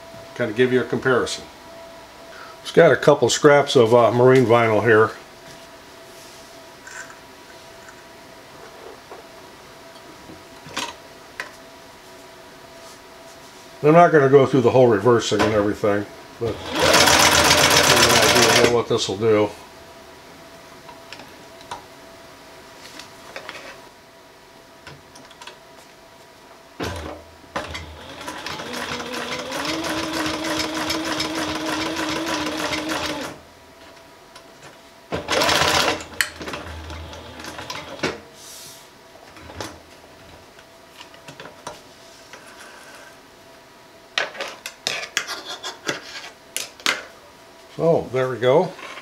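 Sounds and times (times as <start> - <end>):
industrial sewing machine stitching: 16.4 - 18.8, 27.6 - 33.4, 35.2 - 38.1.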